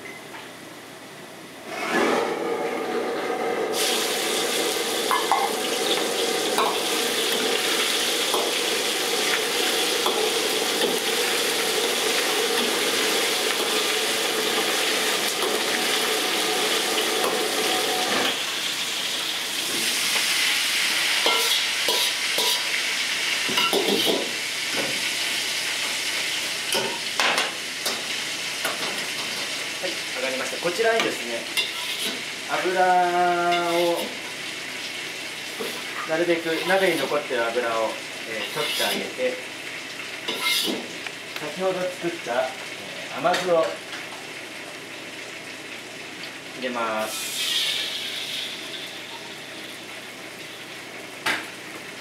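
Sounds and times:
oil sizzling in a wok: 3.2s - 52.0s
ladle stirring oil: 38.3s - 39.1s.

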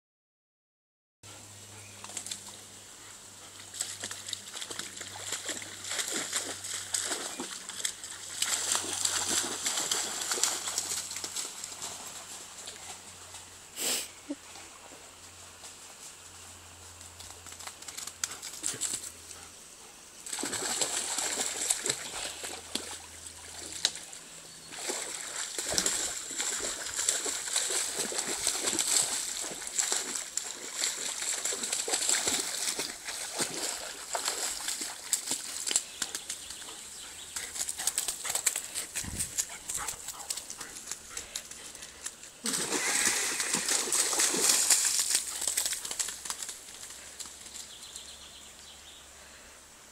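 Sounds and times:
dog splashing in water: 3.7s - 12.0s, 20.2s - 24.1s, 24.7s - 36.6s, 42.4s - 46.8s.

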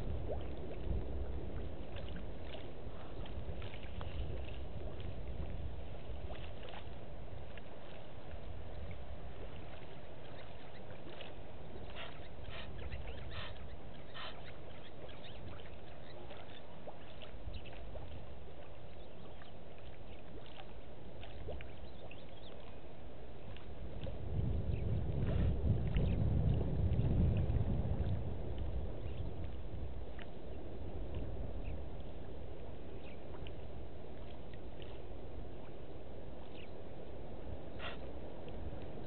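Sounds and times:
wind rumble on microphone: 0.0s - 39.0s.

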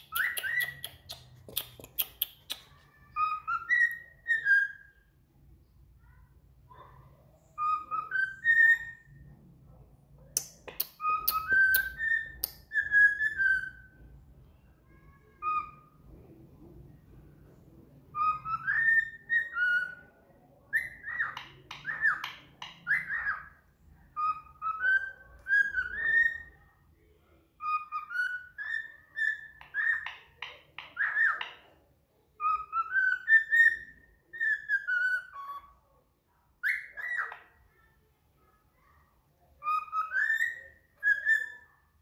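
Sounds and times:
cockatiel chirps: 0.0s - 5.1s, 7.6s - 9.2s, 10.6s - 14.0s, 14.8s - 16.0s, 18.1s - 26.7s, 27.6s - 31.6s, 32.4s - 35.9s, 36.6s - 37.8s, 39.6s - 42.0s
cockatiel whistling a tune: 0.1s - 1.0s, 3.2s - 5.0s, 7.6s - 9.0s, 11.0s - 13.9s, 18.1s - 20.0s, 20.7s - 23.5s, 24.2s - 26.6s, 27.6s - 30.1s, 32.4s - 35.7s, 36.6s - 37.4s, 39.6s - 41.8s.

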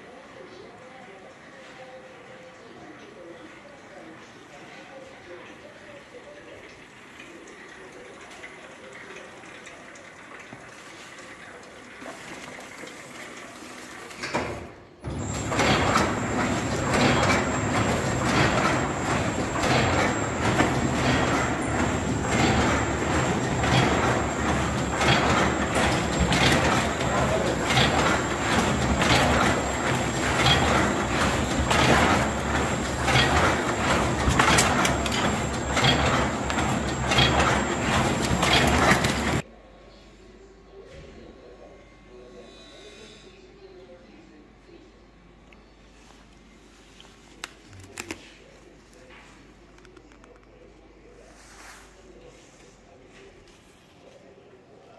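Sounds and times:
wrapping machine clattering: 15.1s - 39.4s.

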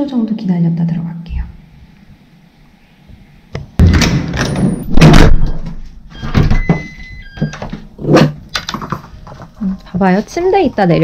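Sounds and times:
electronic lock tone: 4.4s - 7.8s.

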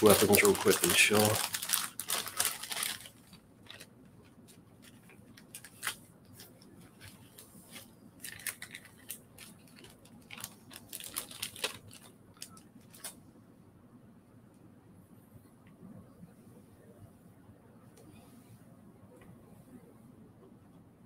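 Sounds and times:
plastic packaging crinkling: 0.0s - 13.2s.

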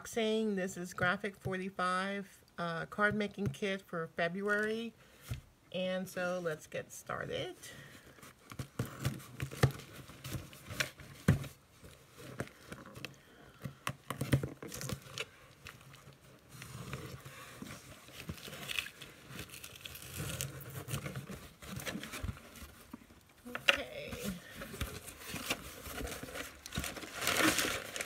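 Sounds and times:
paper rustling and crinkling: 8.0s - 28.0s.

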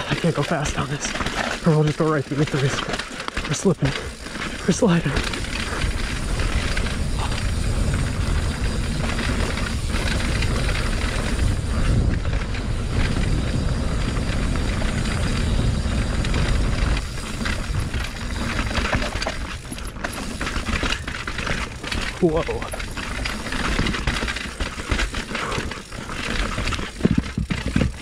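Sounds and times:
bike rattling over bumps: 0.0s - 28.0s
bike tyres rolling and skidding: 0.0s - 28.0s
steady low rumble: 3.8s - 24.2s.

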